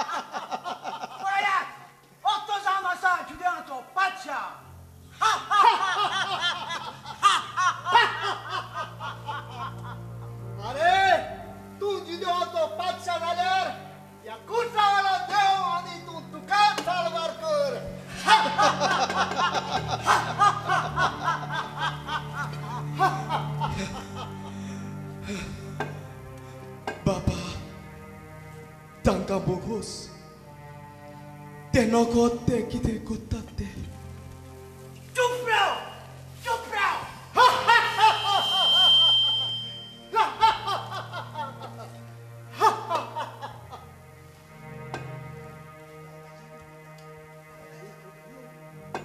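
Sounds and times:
loud laughter: 0.0 - 1.9, 5.2 - 10.2, 18.1 - 25.9, 37.4 - 44.0
low droning background music: 0.0 - 49.0.

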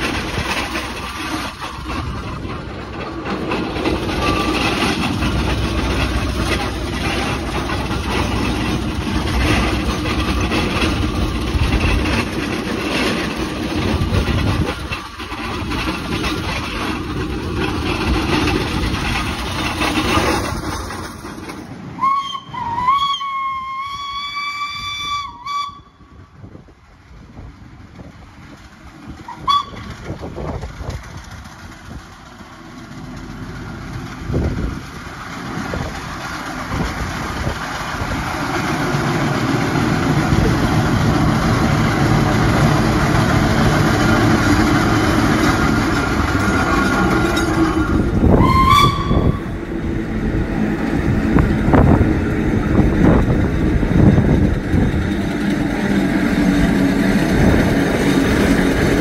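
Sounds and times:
steam engine exhaust beats: 0.0 - 59.0
steam whistle blast: 22.0 - 26.0, 29.3 - 29.8, 48.2 - 49.6.

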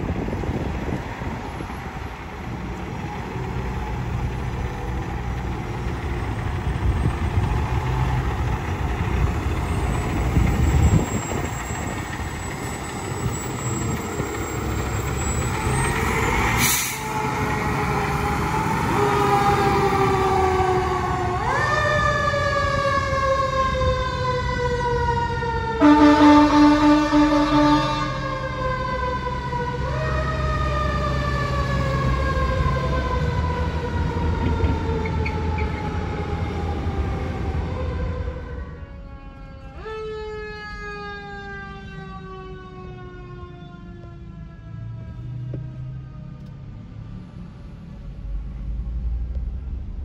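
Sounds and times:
diesel engine running: 0.0 - 21.8
siren wailing: 9.5 - 46.5.

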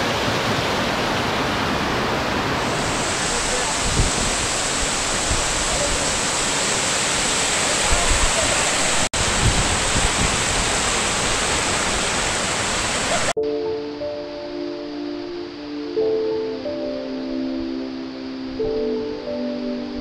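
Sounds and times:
waterfall rushing: 0.0 - 13.4
background music with held tones: 13.4 - 20.0.

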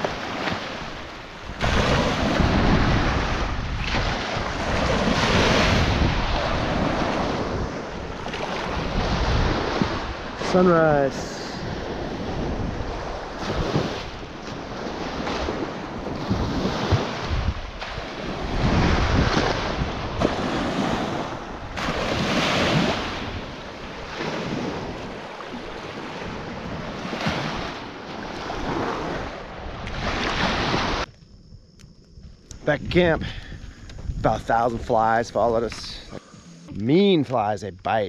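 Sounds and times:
waves washing onto beach: 0.0 - 31.1
wind rumbling on microphone: 0.0 - 37.0.

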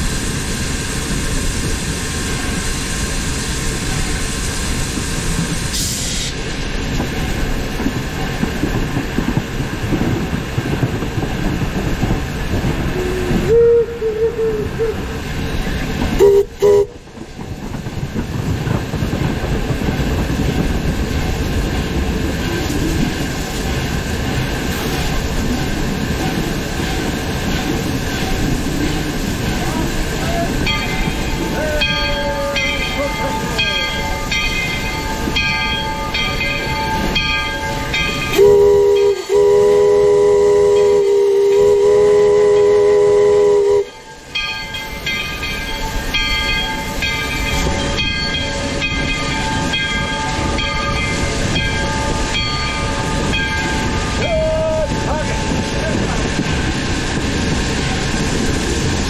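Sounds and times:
train wheels rumbling on rails: 0.0 - 59.0
steam whistle: 13.0 - 15.2, 16.2 - 17.0, 38.3 - 44.1.

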